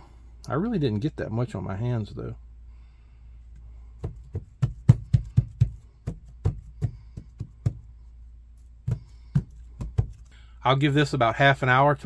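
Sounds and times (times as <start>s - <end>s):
hands patting mat on wooden board: 4.0s - 8.0s, 8.6s - 10.3s.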